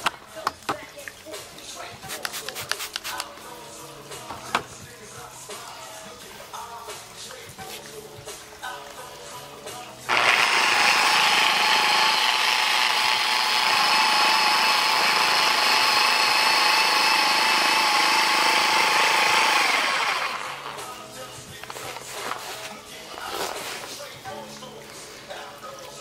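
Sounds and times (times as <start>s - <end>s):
electric polisher motor whining: 10.1s - 20.8s.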